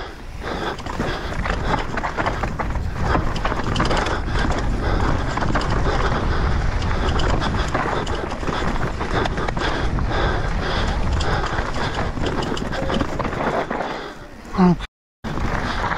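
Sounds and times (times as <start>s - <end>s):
wind buffeting microphone: 0.0s - 14.2s
bike rattling: 0.0s - 14.3s, 15.3s - 15.9s
tyres on dirt and rock: 0.1s - 14.5s.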